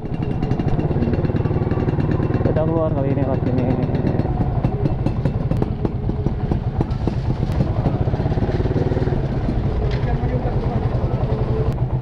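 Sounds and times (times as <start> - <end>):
small motorcycle engine idling: 0.0 - 12.0.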